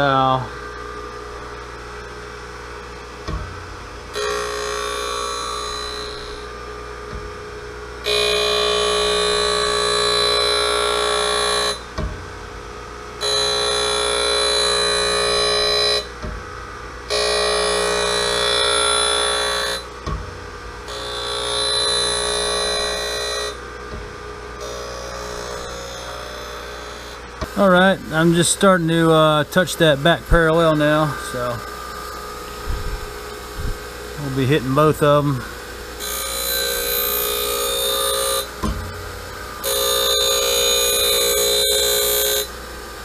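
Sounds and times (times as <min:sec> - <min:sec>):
grinding wheel on steel: 0:03.2 - 0:06.9, 0:08.0 - 0:12.0, 0:13.2 - 0:20.1, 0:20.7 - 0:43.0
spindle humming: 0:13.2 - 0:43.0.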